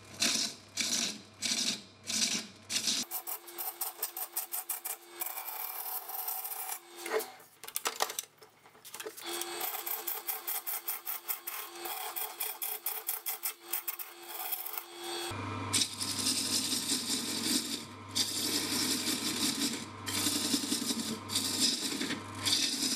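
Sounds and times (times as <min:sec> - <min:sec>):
gouge cutting wood on lathe: 0:03.1 - 0:07.4, 0:09.2 - 0:22.9
lathe motor hum: 0:09.2 - 0:22.9.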